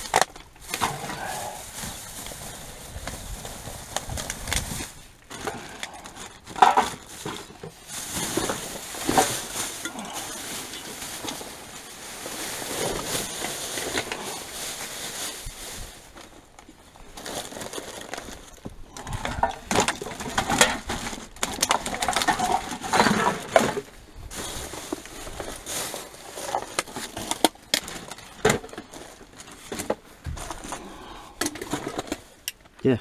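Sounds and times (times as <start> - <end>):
plastic bags rustling: 0.0 - 33.0
clicks and knocks of items: 26.4 - 32.8.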